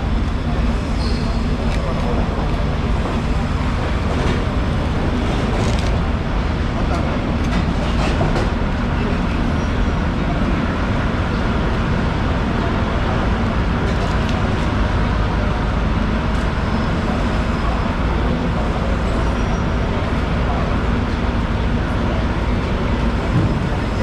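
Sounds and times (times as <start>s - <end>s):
faint voices: 0.0s - 24.0s.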